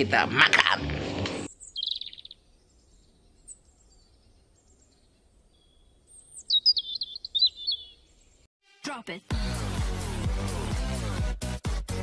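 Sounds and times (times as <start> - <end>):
songbird singing: 1.5 - 8.5.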